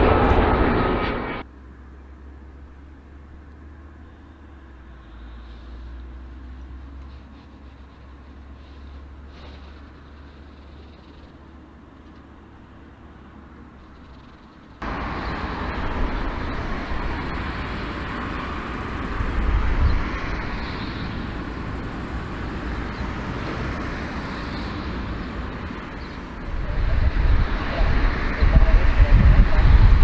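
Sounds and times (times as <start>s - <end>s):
jet engine roar: 0.0s - 1.4s, 14.8s - 30.0s.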